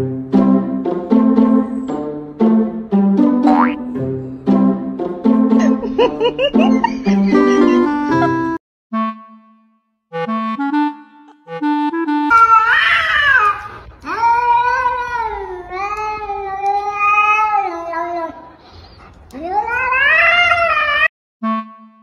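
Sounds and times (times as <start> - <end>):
music: 0.0 - 12.3, 21.4 - 22.0
cat yowling: 12.3 - 18.4, 19.4 - 21.1.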